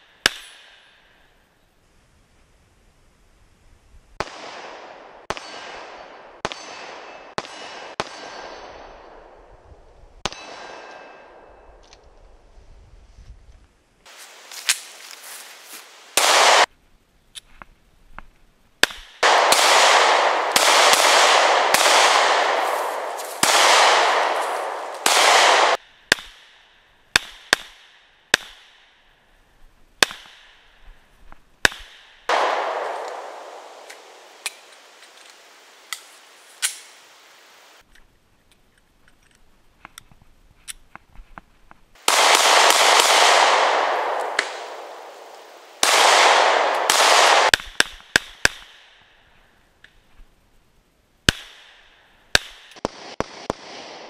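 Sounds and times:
pistol shots echoing: 4.2s - 9.4s, 10.2s - 11.6s, 16.2s - 16.7s, 18.8s - 26.5s, 31.6s - 34.7s, 42.0s - 48.9s, 51.3s - 54.0s.

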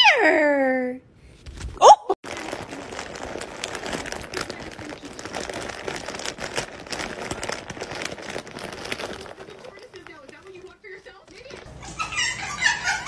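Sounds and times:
foil bag crinkling: 1.5s - 11.7s.

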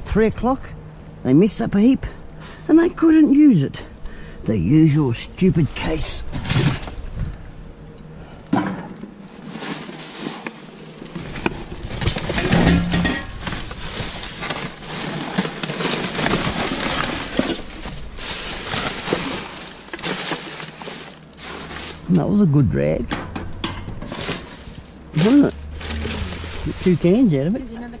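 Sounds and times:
plastic bags rustling and crinkling: 4.8s - 7.4s, 8.6s - 22.5s, 23.9s - 28.0s
rubbish being dragged: 5.4s - 7.2s, 8.6s - 22.4s, 23.9s - 28.0s.

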